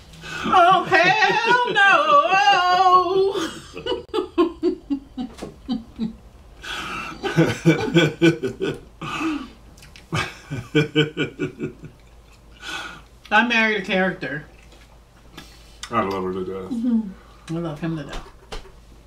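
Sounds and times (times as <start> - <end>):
man and woman laughing: 0.3 - 9.5, 10.1 - 12.0.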